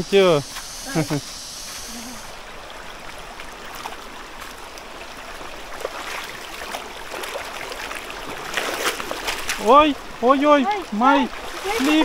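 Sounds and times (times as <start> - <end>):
river water running over stones: 0.0 - 12.0
footsteps splashing through water: 3.2 - 9.7, 10.8 - 12.0.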